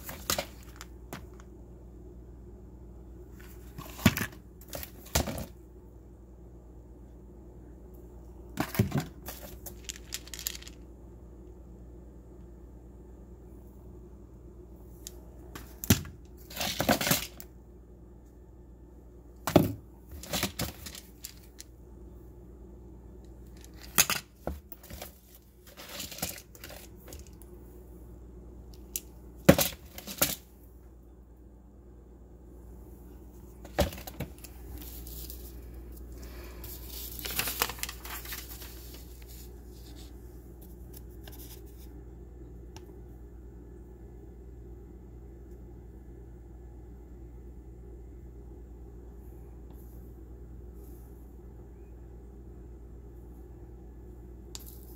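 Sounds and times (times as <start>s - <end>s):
rustling and scraping: 0.0s - 1.4s, 3.3s - 5.6s, 8.6s - 10.8s, 19.5s - 21.7s, 23.4s - 27.4s, 33.0s - 42.0s.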